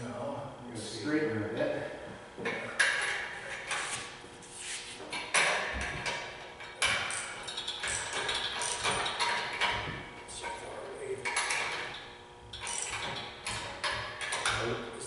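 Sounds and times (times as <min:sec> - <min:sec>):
hoist chain clanking: 0:05.1 - 0:15.0.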